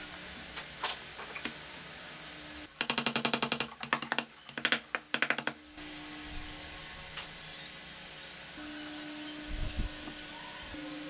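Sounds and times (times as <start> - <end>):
wooden parts clicking: 2.8 - 5.6.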